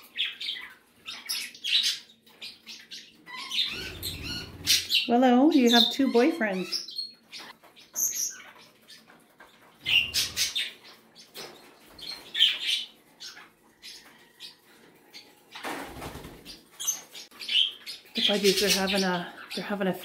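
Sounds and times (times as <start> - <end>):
bird wings flapping: 15.6 - 16.6.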